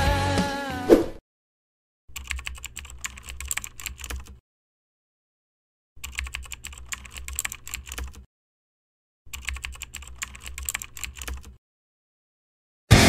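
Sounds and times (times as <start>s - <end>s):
computer keyboard typing: 2.1s - 4.4s, 6.0s - 8.3s, 9.3s - 11.6s.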